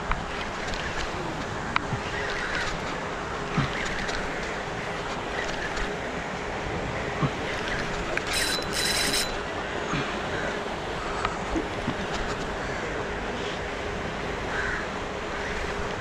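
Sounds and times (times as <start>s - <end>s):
paddlewheel aerators splashing: 0.0s - 10.3s
fishing reel knocking: 8.3s - 9.4s
short high-pitched buzz: 8.3s - 9.4s.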